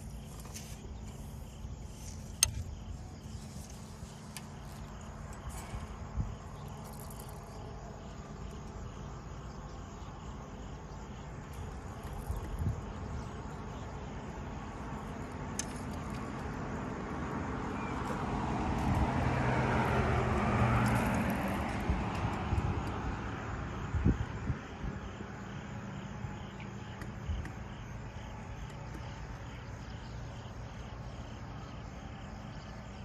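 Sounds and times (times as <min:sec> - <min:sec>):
crickets chirping: 0:00.0 - 0:33.0
vehicle passing by: 0:14.3 - 0:25.2.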